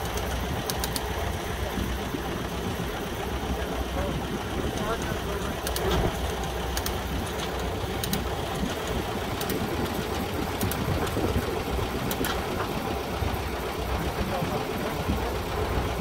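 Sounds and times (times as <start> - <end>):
light clicks: 0.0 - 1.2, 5.0 - 8.3, 9.4 - 10.9, 12.0 - 12.4
engine idling with clatter: 0.0 - 16.0.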